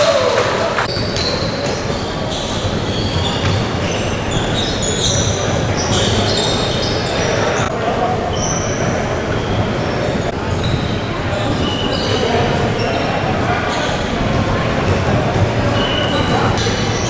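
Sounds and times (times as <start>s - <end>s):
indistinct chatter: 0.0s - 17.0s
sneaker squeaks on hardwood: 0.9s - 7.7s, 8.3s - 13.1s, 15.6s - 17.0s.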